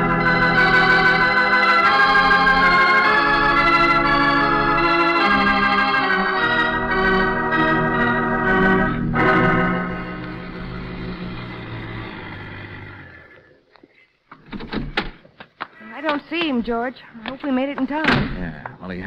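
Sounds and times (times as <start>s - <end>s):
organ playing sustained chords: 0.0s - 13.4s.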